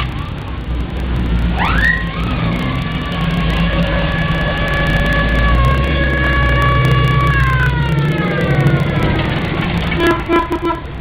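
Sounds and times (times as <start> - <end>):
car engines driving past: 0.0 - 11.0
siren chord sliding down: 1.2 - 9.6.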